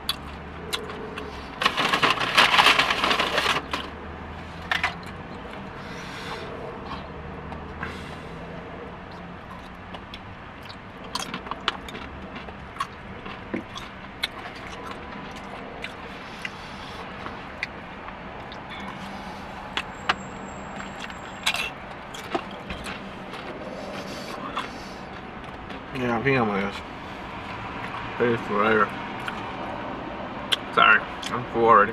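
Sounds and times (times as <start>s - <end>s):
person chewing: 0.0s - 1.5s, 9.1s - 20.0s, 20.8s - 25.8s, 29.2s - 29.5s.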